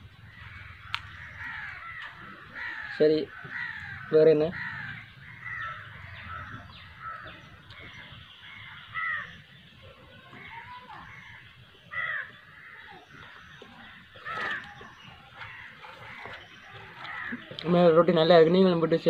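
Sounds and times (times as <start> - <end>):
crows cawing: 0.2 - 18.0.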